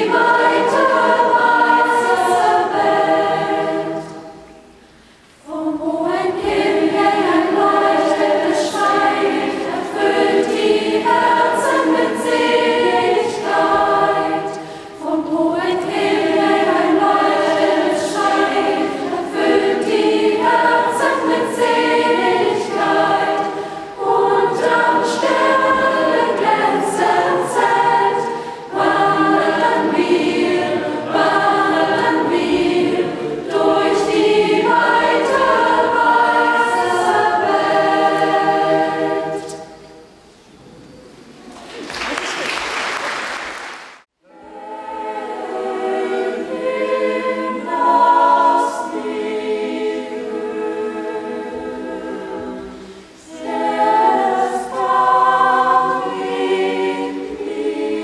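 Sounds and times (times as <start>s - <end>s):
mixed choir singing: 0.0s - 40.3s, 44.2s - 58.0s.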